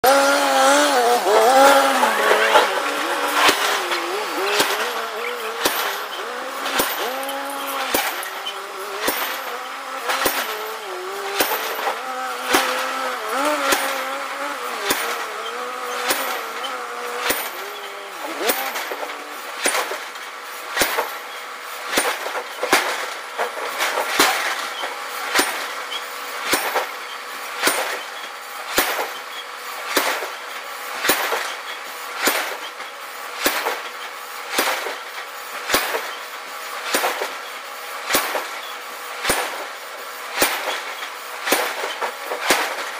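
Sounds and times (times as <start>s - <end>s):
machine hum: 0.0s - 21.7s
power hammer striking metal: 0.0s - 42.9s.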